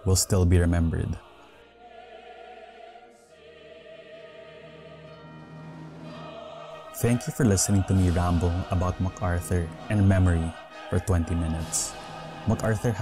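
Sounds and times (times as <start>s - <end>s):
quiet music of held chords: 0.0s - 13.0s.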